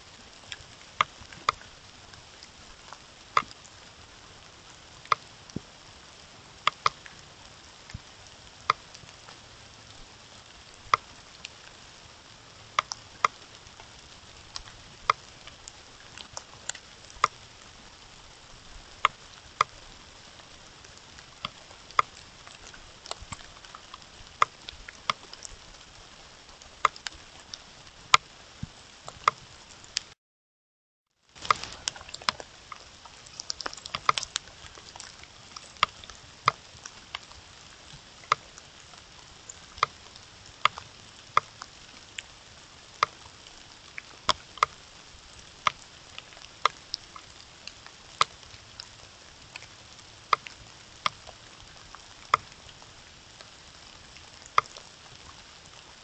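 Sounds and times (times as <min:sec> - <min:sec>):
steady hiss: 0:31.3 - 0:56.0.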